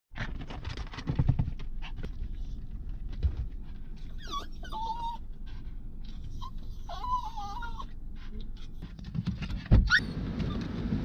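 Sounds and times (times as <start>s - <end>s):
dog whining: 4.0s - 8.0s, 9.8s - 10.6s.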